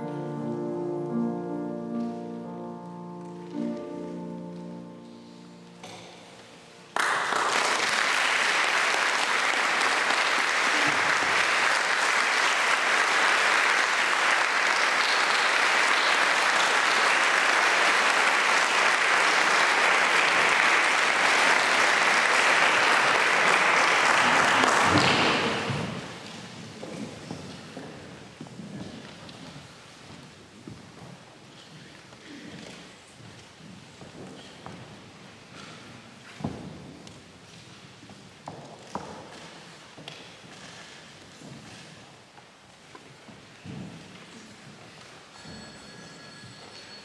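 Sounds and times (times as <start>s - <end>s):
audience applauding: 7.0s - 26.4s.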